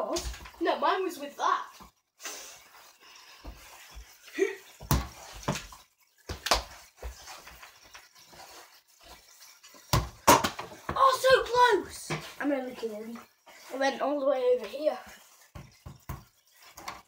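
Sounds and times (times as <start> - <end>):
ball bouncing and thudding: 0.0 - 0.7, 4.8 - 7.2, 9.8 - 11.4, 15.5 - 17.0.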